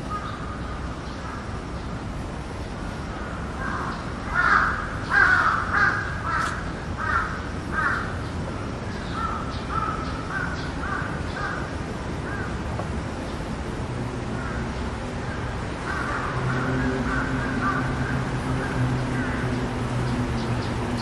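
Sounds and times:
steady background noise: 0.0s - 21.0s
crow cawing: 3.6s - 8.2s, 9.2s - 11.7s, 15.8s - 19.5s.

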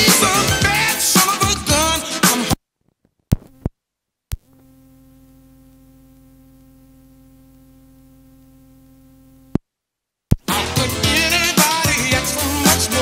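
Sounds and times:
faint buzzy electrical hum: 2.6s - 10.4s.

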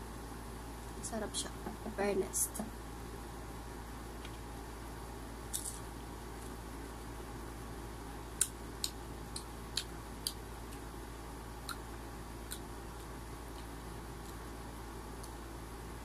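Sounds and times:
crunching mango: 11.6s - 15.4s.

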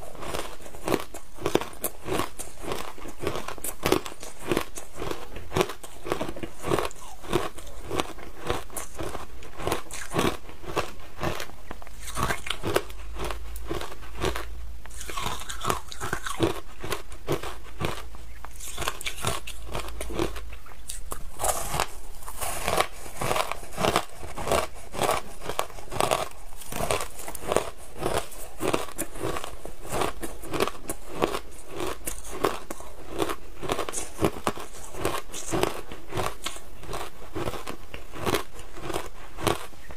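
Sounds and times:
crunching and chewing ice: 0.0s - 39.9s.

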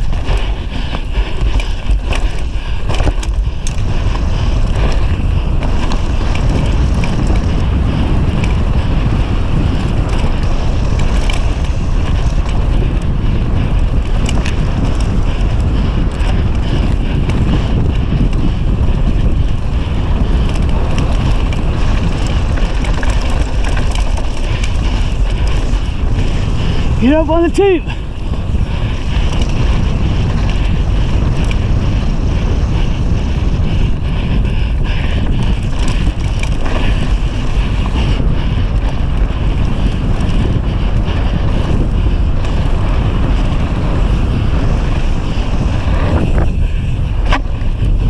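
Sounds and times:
bike clicks and rattles: 0.0s - 48.0s
tyres rolling over dry dirt: 0.0s - 48.0s
wind buffeting microphone: 0.0s - 48.0s.

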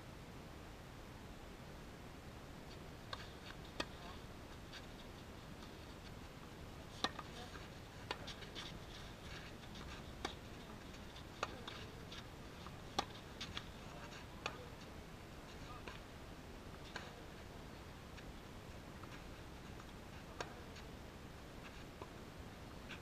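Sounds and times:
tennis ball bouncing: 3.1s - 4.9s, 6.9s - 14.9s, 19.0s - 20.9s.

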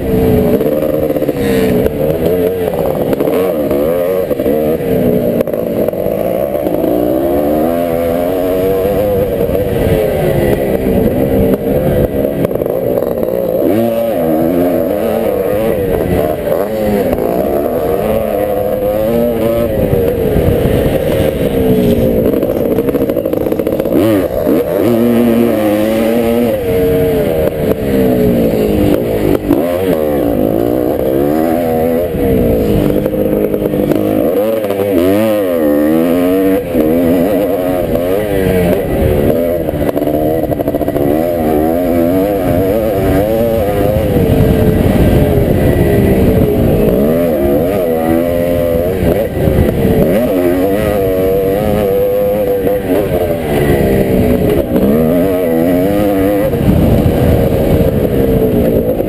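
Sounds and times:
motorbike engine revving: 0.0s - 59.0s.

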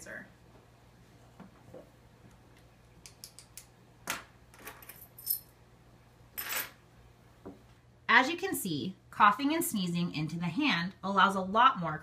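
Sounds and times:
keys jingling: 4.8s - 5.5s.

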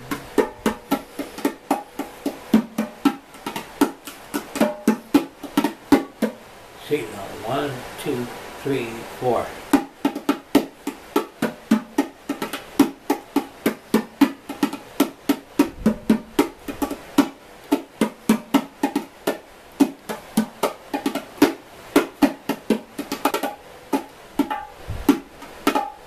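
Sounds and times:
bongos played with hands: 0.0s - 6.6s, 9.6s - 26.0s.

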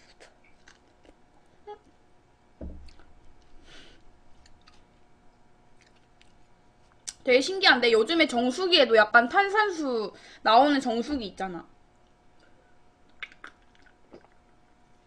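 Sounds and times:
faint chewing and mouth clicks: 0.0s - 2.0s, 2.8s - 3.5s, 4.3s - 7.2s, 12.0s - 14.5s
soft low thump: 2.6s - 2.9s.

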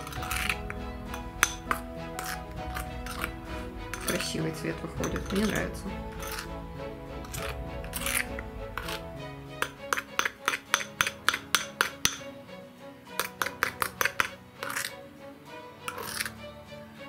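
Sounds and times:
spoon clinking against glass bowl: 0.0s - 4.4s, 5.0s - 6.5s, 9.6s - 12.2s
soft background music: 0.0s - 17.0s.

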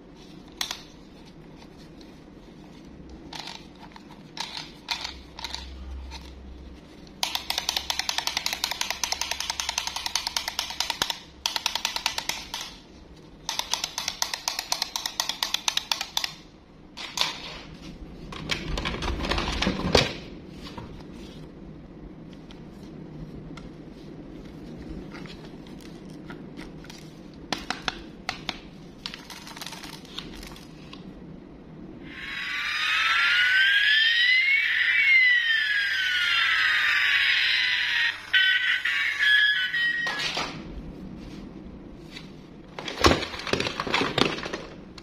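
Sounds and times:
handling plastic toy: 0.2s - 16.4s, 22.4s - 31.1s, 42.0s - 45.0s
wind-up toy clockwork clicking: 7.2s - 12.8s.

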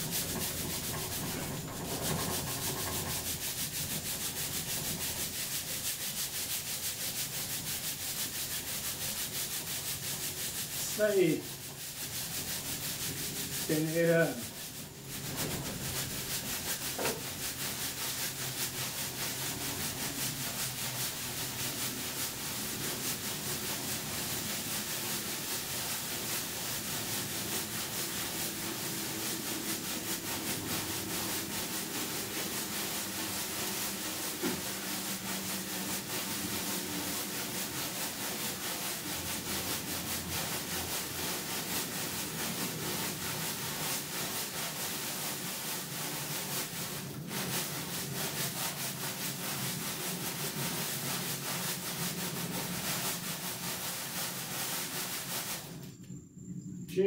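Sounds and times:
sand scraping over sieve mesh: 0.0s - 55.9s.

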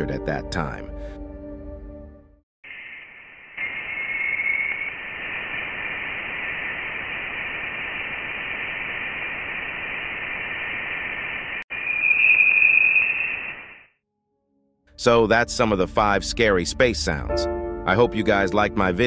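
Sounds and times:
static hiss: 2.6s - 13.9s
thin high whistling tone: 2.7s - 5.0s, 11.7s - 13.9s.

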